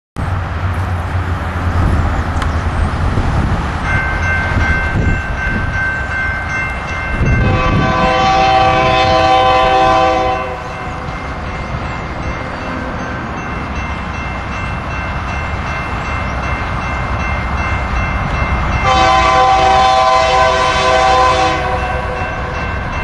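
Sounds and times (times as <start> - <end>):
diesel locomotives rumbling: 0.2 - 23.0
train air horn: 7.4 - 10.8, 18.8 - 22.5.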